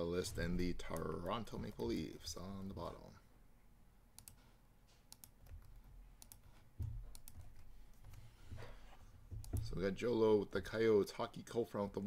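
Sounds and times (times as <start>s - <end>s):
keyboard and mouse clicks: 4.2s - 4.4s, 5.1s - 8.3s, 9.4s - 9.8s.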